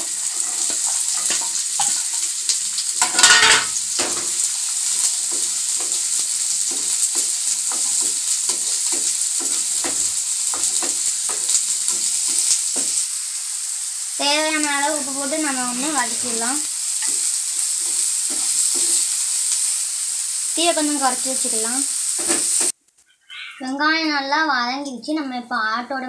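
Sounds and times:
wooden spatula stirring in pan: 0.0s - 13.1s, 14.7s - 20.4s
shallots sizzling in hot oil: 0.0s - 22.8s.

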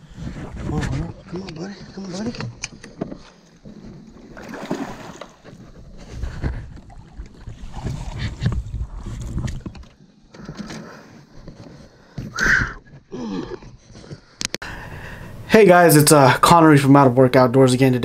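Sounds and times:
fish splashing in a landing net: 4.4s - 5.4s.

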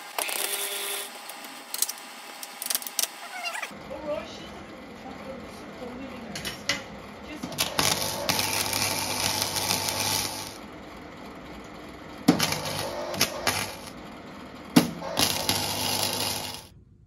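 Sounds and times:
welding arc crackling: 0.0s - 3.4s, 7.4s - 10.6s, 12.2s - 14.0s, 14.8s - 16.7s.

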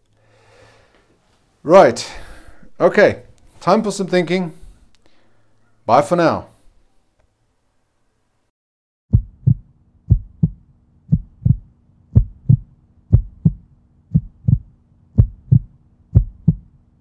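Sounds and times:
heartbeat-like double thump: 9.1s - 16.7s.

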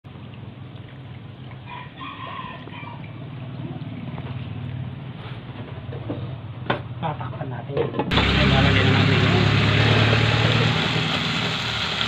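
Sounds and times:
water pouring into pot: 0.1s - 4.9s, 8.1s - 12.0s
rooster crowing: 1.6s - 3.1s.

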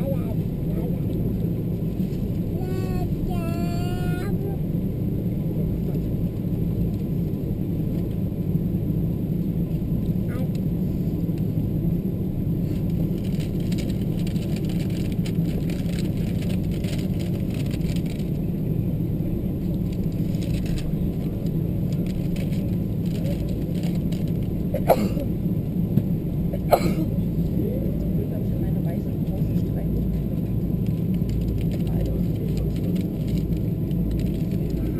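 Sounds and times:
aircraft engines rumbling: 0.0s - 34.9s.

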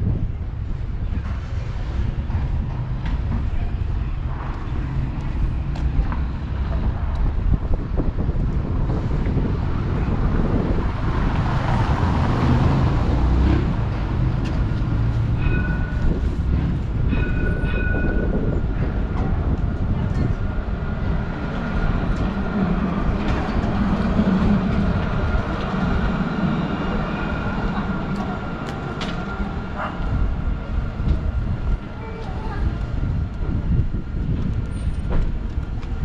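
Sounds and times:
tram rumbling past: 0.0s - 36.0s.

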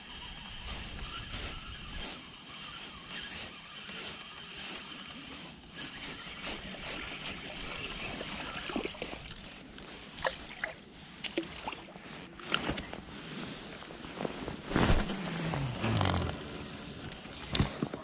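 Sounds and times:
spinning reel being wound: 0.0s - 8.7s
wind: 0.0s - 18.0s
water lapping at a bank: 2.2s - 12.8s.

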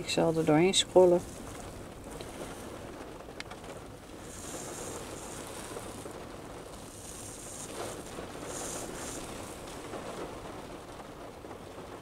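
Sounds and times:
faint high hiss: 4.1s - 10.3s.

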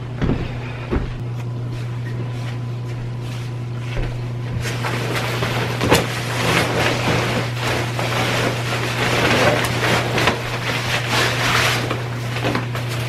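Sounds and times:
low steady hum: 0.0s - 13.0s
nylon jacket rustling: 4.6s - 12.6s.

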